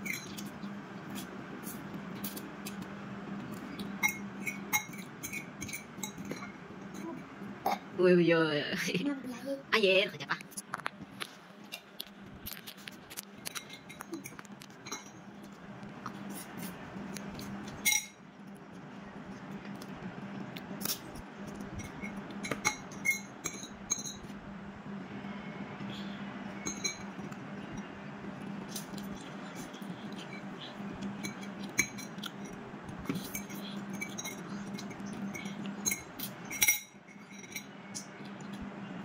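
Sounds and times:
steady low hum: 0:00.0 - 0:39.0
fork scraping ceramic plate: 0:28.7 - 0:38.0.

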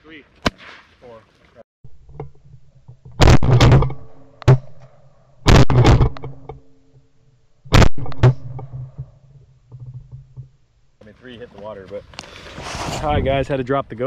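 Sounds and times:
shotguns firing: 0:03.2 - 0:06.5, 0:07.7 - 0:09.0.

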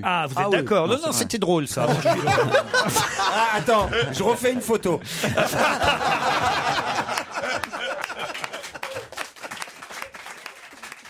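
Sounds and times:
people laughing: 0:01.8 - 0:10.2.

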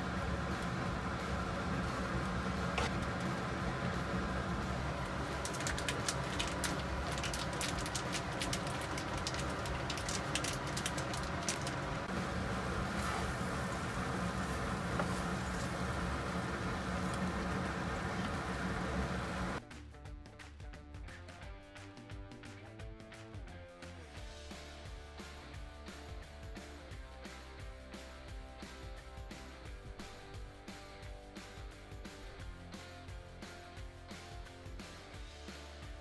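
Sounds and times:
steady low hum: 0:00.0 - 0:19.6.

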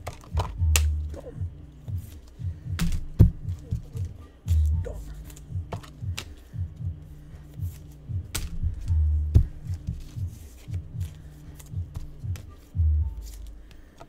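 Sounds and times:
rap music with pulsing bass: 0:00.0 - 0:13.7.

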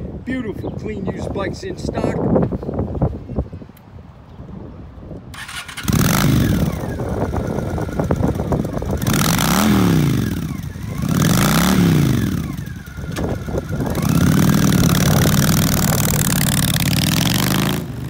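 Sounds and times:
motorcycle engine starting and revving: 0:05.3 - 0:18.0.

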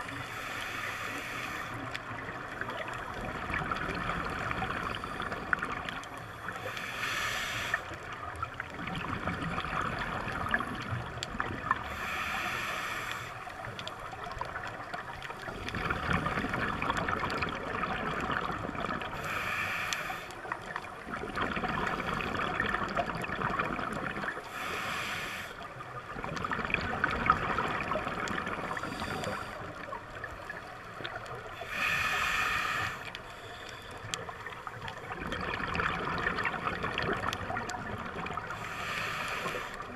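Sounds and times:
hissing regulator inhalations: 0:00.0 - 0:02.0, 0:06.2 - 0:08.0, 0:11.8 - 0:13.6, 0:19.2 - 0:20.5, 0:24.4 - 0:25.8, 0:28.7 - 0:29.9, 0:31.6 - 0:34.4, 0:38.5 - 0:39.9
gurgling exhaled bubbles: 0:02.0 - 0:06.2, 0:08.0 - 0:12.0, 0:13.6 - 0:19.3, 0:20.5 - 0:24.6, 0:25.7 - 0:32.2, 0:34.2 - 0:39.9.

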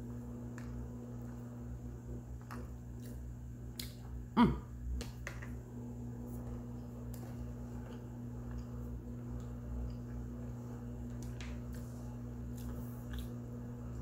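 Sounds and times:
steady low hum: 0:00.0 - 0:14.0
falling-pitched throat sound: 0:04.4 - 0:04.7
person chewing: 0:12.4 - 0:13.4.

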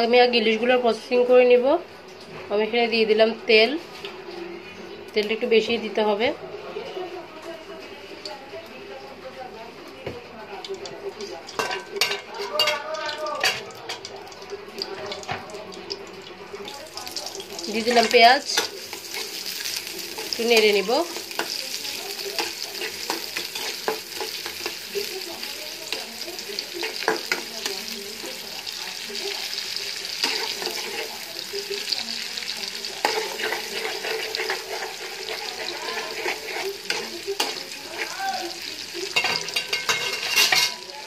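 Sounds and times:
onions sizzling in hot oil: 0:07.5 - 0:41.0
spatula scraping a pan: 0:17.8 - 0:28.4, 0:29.5 - 0:40.8.

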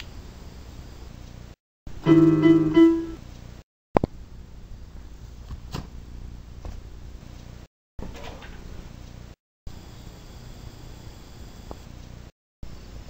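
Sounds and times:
keyboard notes: 0:02.0 - 0:03.3.

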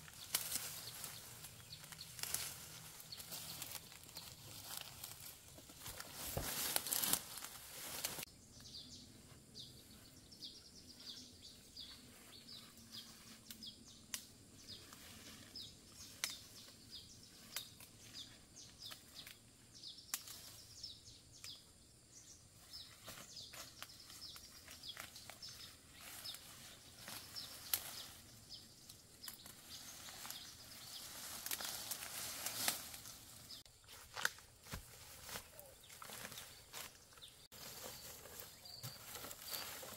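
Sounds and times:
rustling of ferns and undergrowth: 0:00.0 - 0:39.9.

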